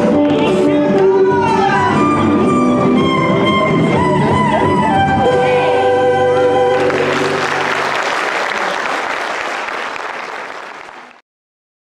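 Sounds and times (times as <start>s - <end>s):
dance music: 0.0s - 8.0s
audience applause: 6.7s - 11.2s.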